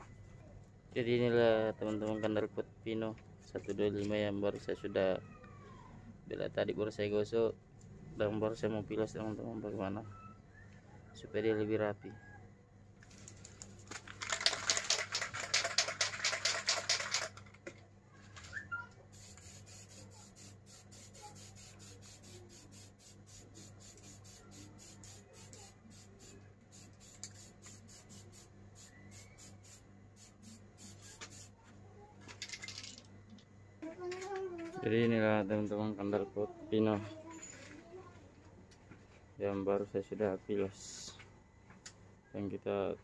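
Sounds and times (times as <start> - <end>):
spray can ball rattling: 13.3 - 17.5, 19.1 - 31.5, 32.3 - 33.1
spray paint hissing: 19.1 - 31.6.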